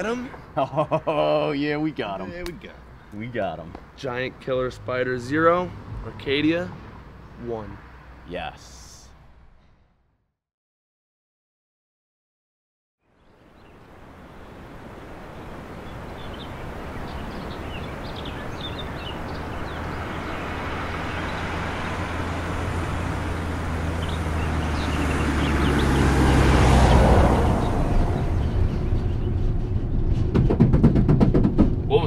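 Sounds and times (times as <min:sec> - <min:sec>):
van engine and tyre noise: 0:14.0 - 0:32.0.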